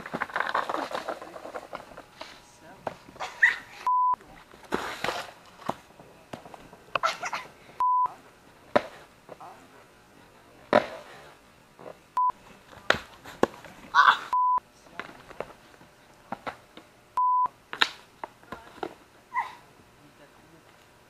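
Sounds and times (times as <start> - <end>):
censor bleeps: 3.9 - 4.2, 7.8 - 8.1, 14.3 - 14.6, 17.2 - 17.5.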